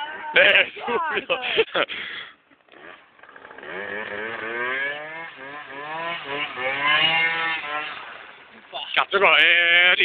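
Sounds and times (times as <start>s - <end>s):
small motorcycle engine revving: 2.6s - 10.0s.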